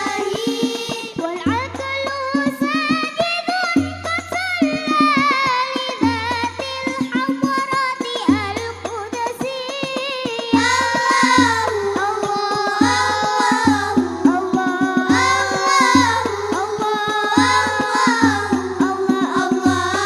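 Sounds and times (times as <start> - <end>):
children singing into microphones: 0.0 - 20.0
frame drums playing: 10.5 - 20.0.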